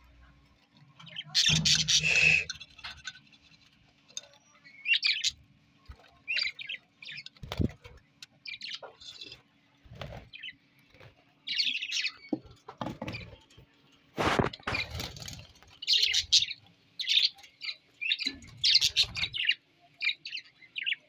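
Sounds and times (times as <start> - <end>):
budgerigars chirping: 1.1 - 2.6.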